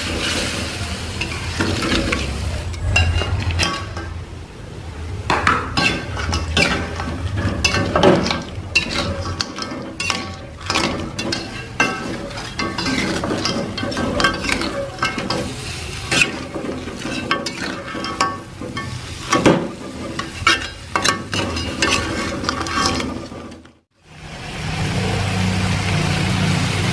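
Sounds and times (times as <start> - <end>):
metal spatula scraping wok: 0.0 - 4.4, 5.2 - 23.8
frying oil sizzling: 0.0 - 26.9.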